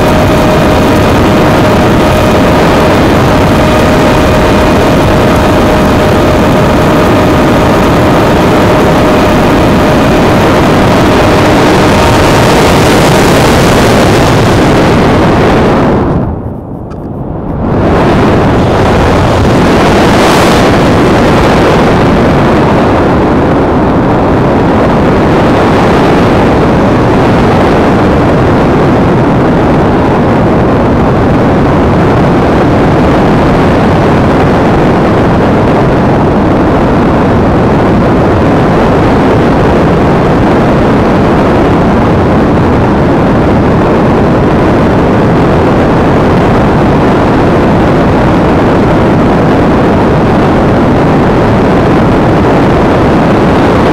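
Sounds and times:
wind buffeting microphone: 0.0s - 53.9s.

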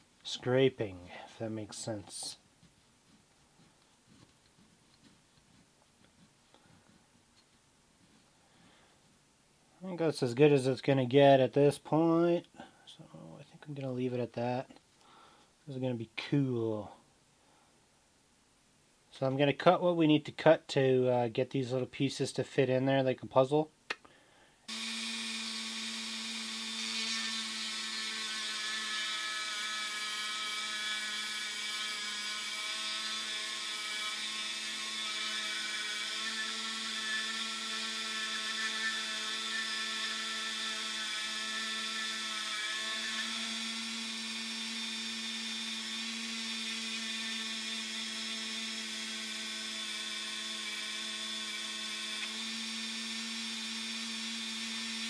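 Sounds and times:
rotary tool grinding metal: 24.7s - 55.0s.

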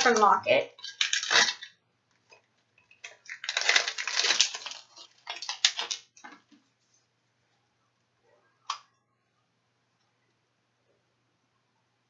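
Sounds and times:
plastic wrapper crinkling: 0.0s - 6.6s.

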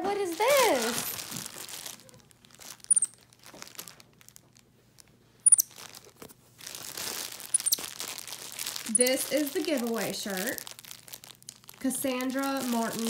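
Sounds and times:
plastic packaging crinkling and tearing: 0.0s - 13.0s
monkey squeaks: 2.9s - 3.2s, 5.4s - 5.7s, 7.5s - 7.8s, 8.9s - 9.2s.

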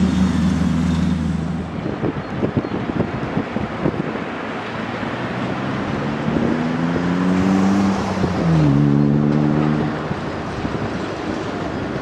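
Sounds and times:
vehicle engine accelerating: 0.0s - 2.1s, 5.0s - 10.9s
background traffic rush: 0.0s - 12.0s.

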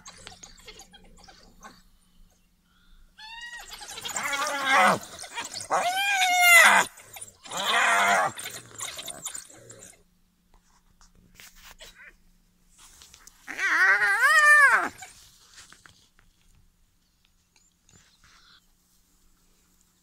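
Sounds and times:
wild dogs squealing and twittering: 0.0s - 10.0s, 13.4s - 15.2s.

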